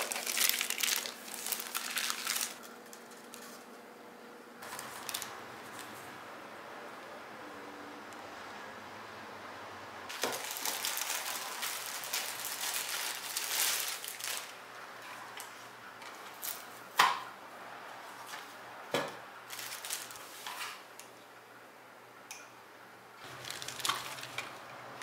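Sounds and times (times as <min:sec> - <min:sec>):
plastic bag crinkling: 0:00.0 - 0:03.5, 0:04.6 - 0:05.8, 0:10.1 - 0:14.6, 0:19.4 - 0:20.6, 0:23.2 - 0:24.6.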